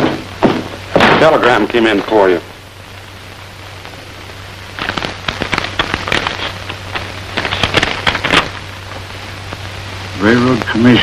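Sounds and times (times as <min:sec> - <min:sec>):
paper crinkling: 0:04.8 - 0:09.0.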